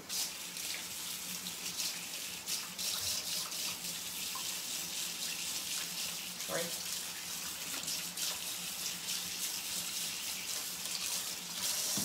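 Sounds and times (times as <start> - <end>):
faucet running into sink: 0.0 - 12.0.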